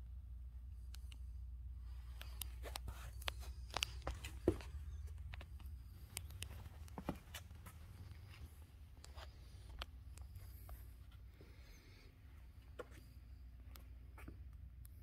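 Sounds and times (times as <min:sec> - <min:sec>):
low steady rumble: 0:00.0 - 0:15.0
footsteps on concrete floor: 0:02.6 - 0:11.7.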